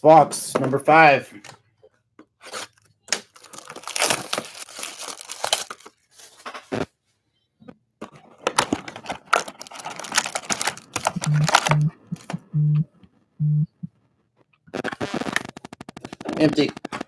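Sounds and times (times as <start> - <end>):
plastic shrink wrap crinkling: 2.4 - 6.8, 8.3 - 12.4.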